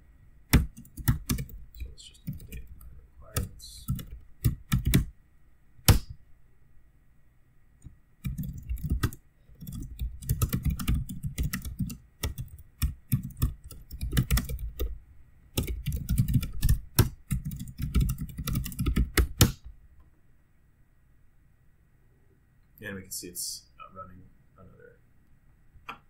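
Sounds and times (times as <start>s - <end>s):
computer keyboard typing: 0.5s - 5.1s, 8.2s - 14.9s, 15.6s - 19.6s.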